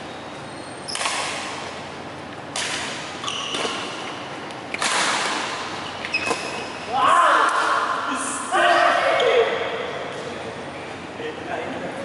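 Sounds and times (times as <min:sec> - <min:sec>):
court shoes squeaking: 0:00.0 - 0:07.6
rackets hitting shuttlecock: 0:00.9 - 0:08.0.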